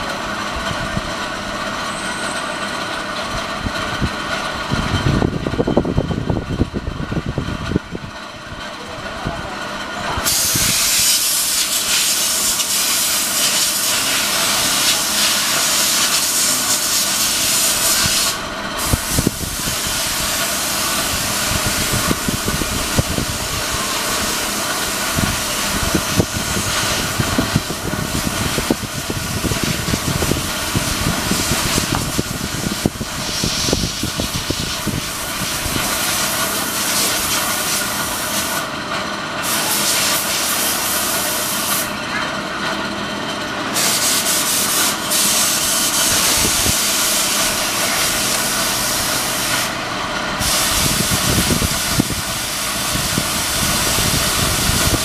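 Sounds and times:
loud steady hissing: 10.2s - 38.7s, 43.8s - 49.8s, 50.4s - 55.0s.

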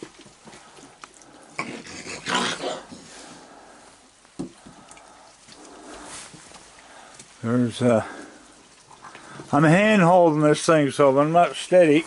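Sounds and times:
raccoons snarling and hissing: 0.7s - 7.1s, 8.0s - 9.6s.

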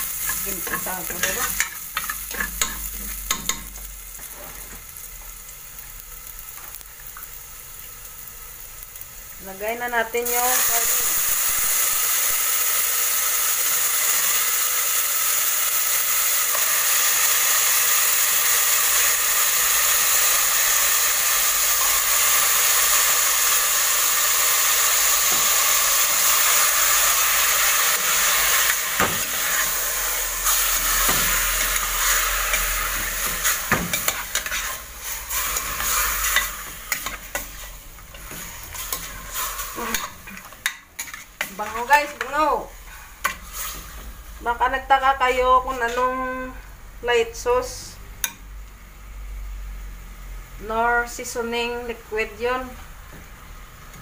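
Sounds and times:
meat sizzling in oil: 0.0s - 45.9s
metal spoon scraping pot: 30.5s - 42.3s.

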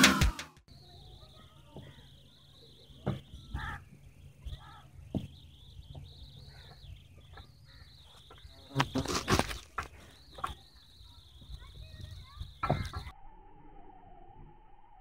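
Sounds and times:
high-pitched insect chorus: 0.7s - 13.9s
bumps and rustles: 8.2s - 10.6s.

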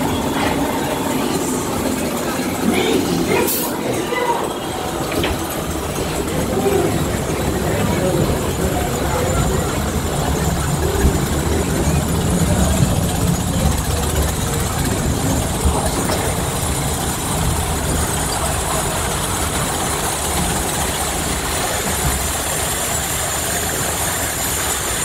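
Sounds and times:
flowing flume water: 0.0s - 25.0s
ride machinery rumble: 0.0s - 25.0s.

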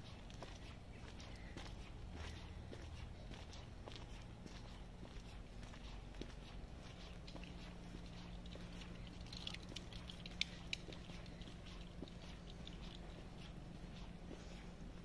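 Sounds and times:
footsteps on path: 0.0s - 15.0s.

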